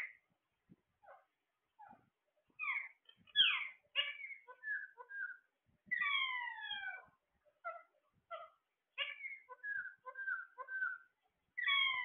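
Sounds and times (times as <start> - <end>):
parakeets chirping and squawking: 2.6 - 12.0.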